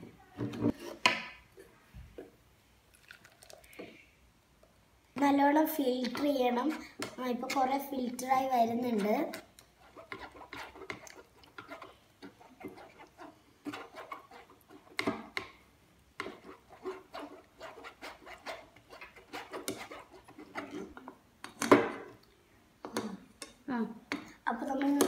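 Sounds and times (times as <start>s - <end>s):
spoon scraping pulp through strainer: 8.8s - 15.3s, 16.2s - 21.0s.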